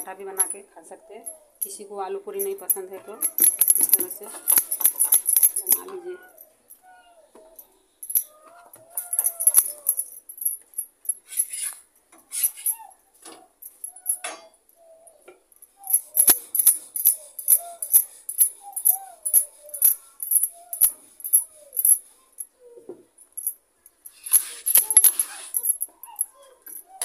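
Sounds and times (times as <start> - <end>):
glass bangles clinking: 0.0 - 22.6, 23.2 - 27.0
short squeaks: 11.2 - 13.0.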